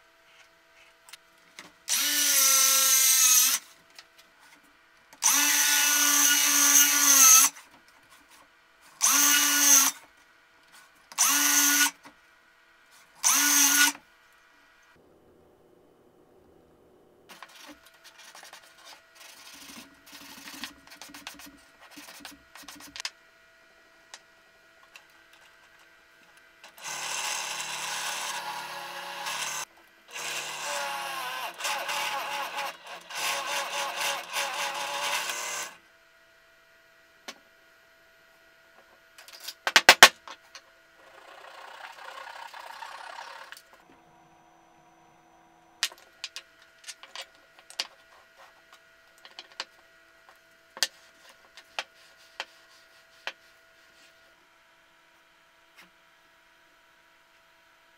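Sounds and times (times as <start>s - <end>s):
drill press boring into plywood: 9.0s - 9.9s, 11.2s - 11.9s, 13.2s - 14.0s, 26.7s - 35.8s, 41.0s - 43.6s.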